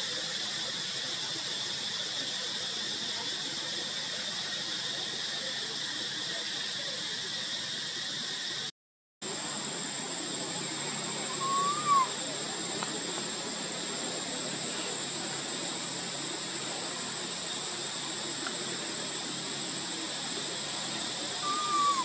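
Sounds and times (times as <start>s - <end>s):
outdoor hiss: 0.0s - 22.0s
thin high whine: 9.3s - 22.0s
monkey squeak: 11.4s - 12.1s.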